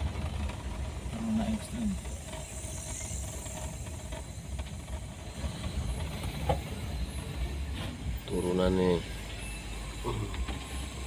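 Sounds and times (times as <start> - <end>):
car engine and road rumble: 0.0 - 11.0.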